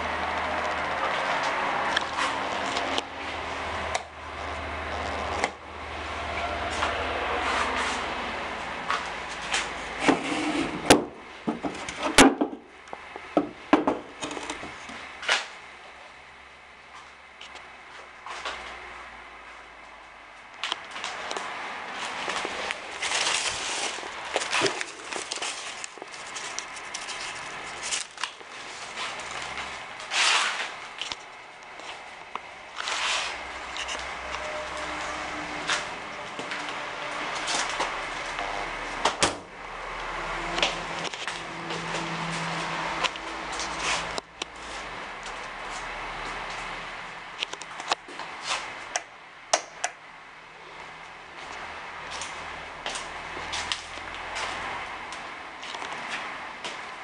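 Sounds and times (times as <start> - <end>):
handling noise rustling and scraping: 8.9 - 12.6, 20.7 - 39.0, 40.4 - 46.8
loud rasping scrapes: 10.0 - 10.9.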